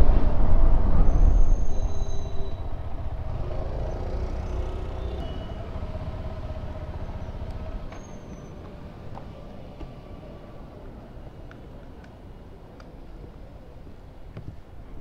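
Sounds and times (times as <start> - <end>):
motorcycle engine slowing down: 2.6 - 8.8.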